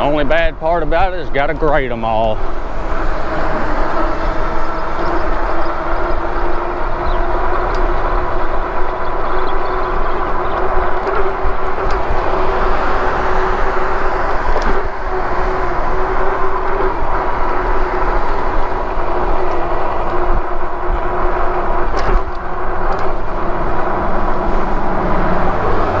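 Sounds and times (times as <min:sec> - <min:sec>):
hub motor whine: 0:00.0 - 0:26.0
wind rushing over microphone: 0:00.0 - 0:26.0.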